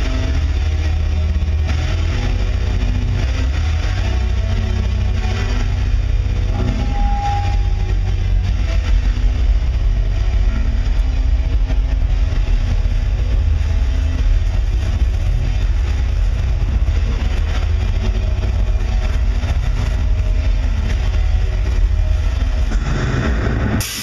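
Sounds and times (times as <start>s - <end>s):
low rumbling drone: 0.0s - 24.0s
faint held tones: 6.5s - 8.1s.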